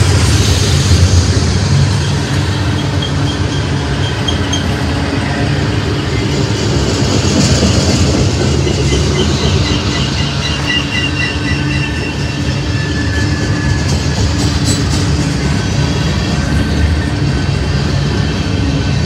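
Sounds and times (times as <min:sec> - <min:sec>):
train wheels rumbling on rail: 0:00.0 - 0:19.0
high wheel squeal: 0:01.9 - 0:06.4, 0:08.4 - 0:16.4.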